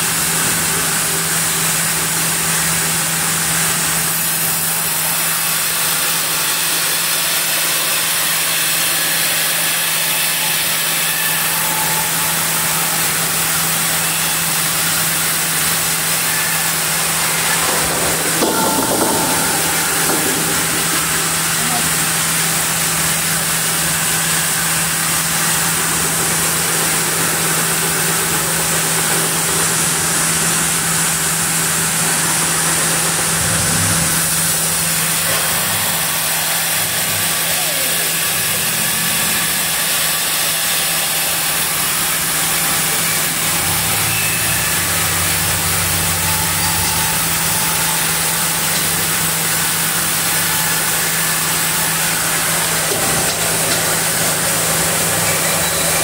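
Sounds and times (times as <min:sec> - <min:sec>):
band saw cutting log: 0:00.0 - 0:56.0.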